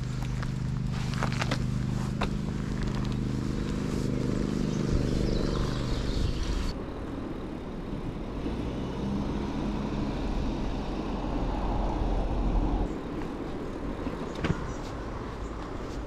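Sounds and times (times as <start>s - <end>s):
motor vehicle passing: 0.0s - 6.8s, 8.0s - 16.0s
steady low rumble: 0.0s - 8.4s.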